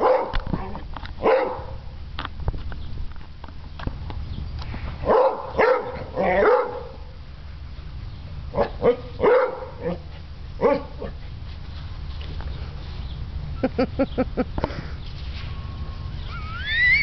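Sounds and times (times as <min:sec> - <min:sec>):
dog barking: 0:00.0 - 0:00.4, 0:01.2 - 0:01.8, 0:05.0 - 0:07.0, 0:08.6 - 0:10.0, 0:10.6 - 0:11.2.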